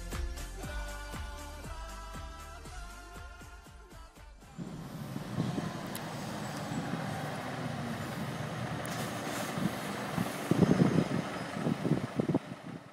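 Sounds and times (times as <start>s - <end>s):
truck engine running: 4.5s - 12.9s.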